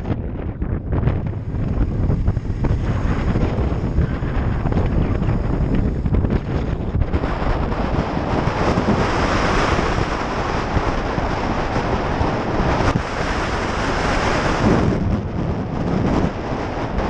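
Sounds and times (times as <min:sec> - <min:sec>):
motorcycle engine: 0:00.0 - 0:15.8
road noise: 0:00.0 - 0:17.0
wind rush on microphone: 0:00.0 - 0:17.0.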